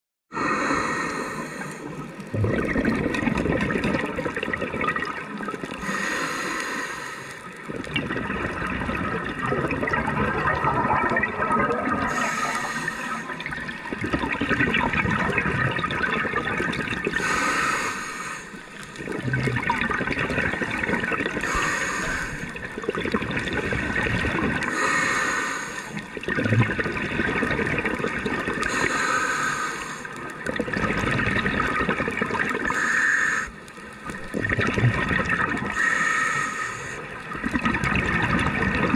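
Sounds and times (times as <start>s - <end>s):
bubbles rushing and gurgling: 1.4s - 6.4s, 7.4s - 25.3s, 26.0s - 32.8s, 33.6s - 38.9s
regulator hiss: 12.1s - 13.4s, 17.2s - 18.7s, 21.4s - 22.5s, 24.7s - 26.0s, 28.7s - 30.2s, 32.7s - 33.7s, 35.8s - 37.2s.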